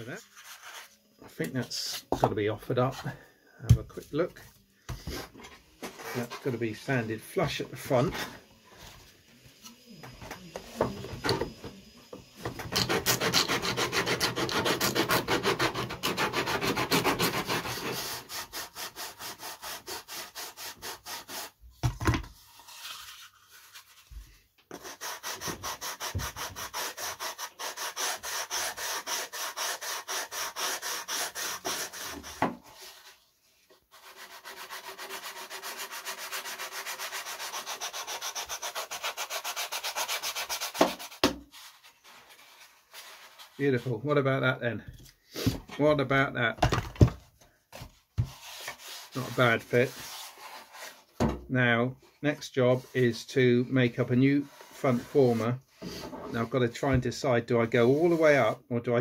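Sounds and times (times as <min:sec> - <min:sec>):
sanding block rubbing on wood: 0:12.7 - 0:21.6, 0:24.7 - 0:33.1, 0:33.9 - 0:43.6, 0:48.3 - 0:51.0.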